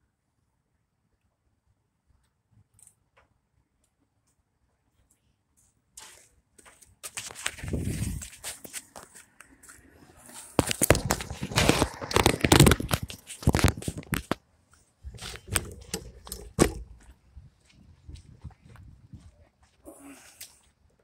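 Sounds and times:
microphone handling rustle: 0:07.2 - 0:09.2, 0:10.3 - 0:14.4, 0:15.0 - 0:19.4.

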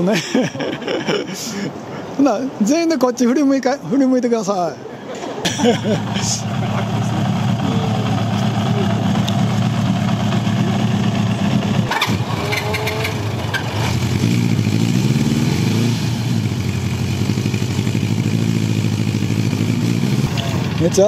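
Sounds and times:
motorcycle engines idling: 0:05.5 - 0:21.0.

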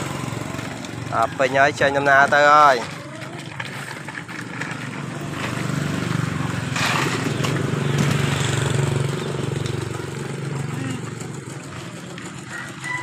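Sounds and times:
scraping rush: 0:02.1 - 0:08.8.

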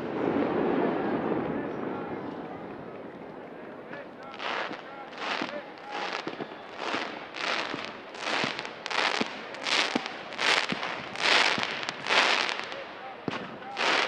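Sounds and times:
firework bursts popping: 0:04.2 - 0:14.0
rockets hissing upward: 0:04.3 - 0:12.8.

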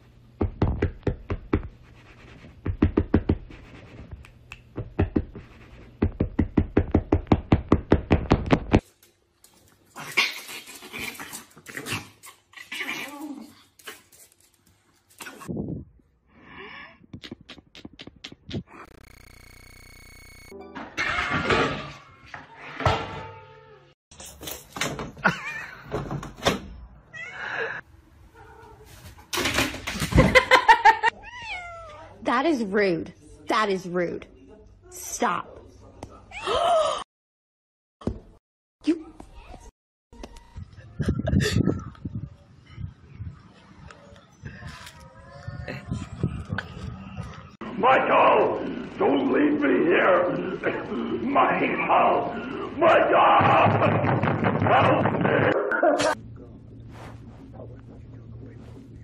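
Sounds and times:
cats meowing: 0:31.1 - 0:32.1
knocks and bumps: 0:53.4 - 0:55.6.

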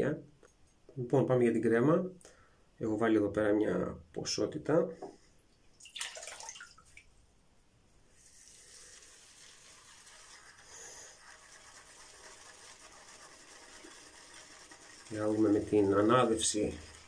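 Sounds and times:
running water hiss: 0:08.1 - 0:17.0.

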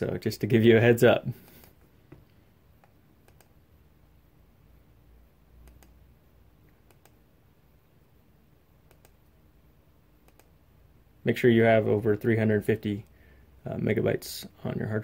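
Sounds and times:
faint computer mouse clicks: 0:02.8 - 0:03.5, 0:05.6 - 0:06.0, 0:06.7 - 0:07.2, 0:08.8 - 0:09.2, 0:10.2 - 0:10.6.

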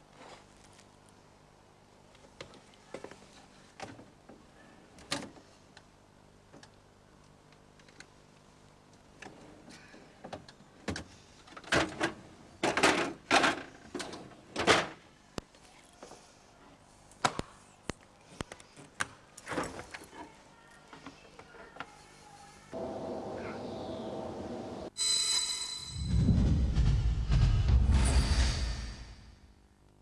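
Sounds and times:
fridge door and contents clattering: 0:10.3 - 0:15.0.

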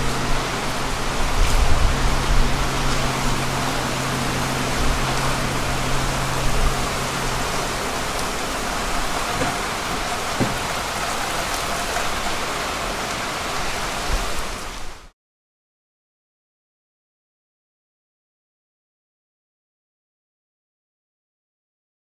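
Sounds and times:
low steady hum: 0:00.0 - 0:12.2
heavy rain on pavement: 0:00.0 - 0:15.1.

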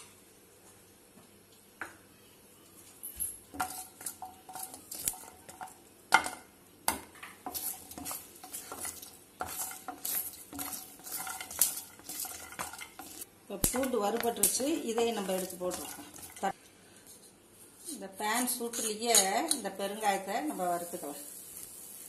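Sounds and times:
garlic cloves knocking in a pan: 0:03.6 - 0:16.5
wooden spatula scraping a pan: 0:07.4 - 0:16.6.

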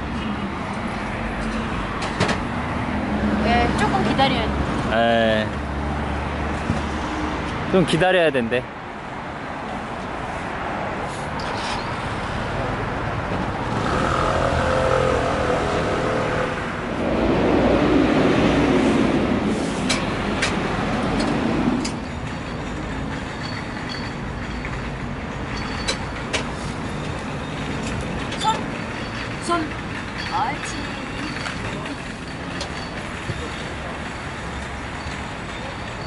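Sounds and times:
traffic rumble: 0:00.0 - 0:36.0
vehicles passing close: 0:00.0 - 0:36.0.

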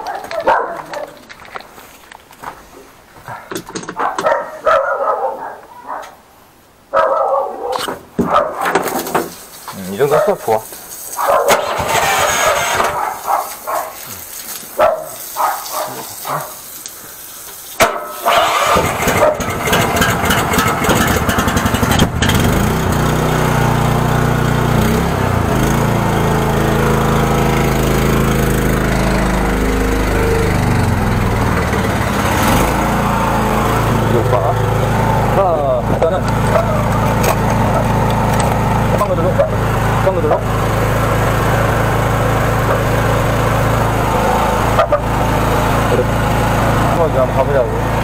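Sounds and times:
small engine running: 0:11.5 - 0:13.9, 0:18.2 - 0:48.0.

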